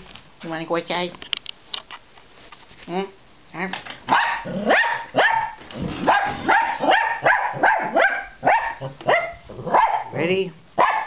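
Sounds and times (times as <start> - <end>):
dog barking: 4.1 - 10.2, 10.8 - 11.0.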